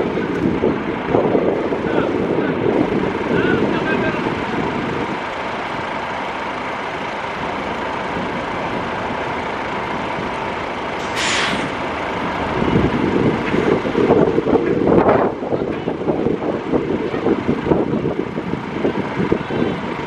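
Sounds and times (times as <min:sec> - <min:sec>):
jet engines rushing: 0:07.4 - 0:20.0
brief hiss: 0:11.0 - 0:11.8.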